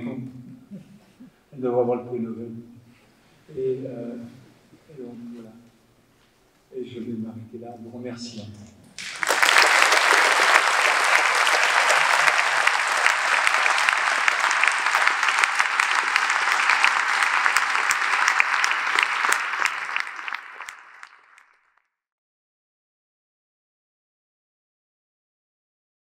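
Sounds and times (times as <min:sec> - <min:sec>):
audience applauding: 0:09.0 - 0:21.7.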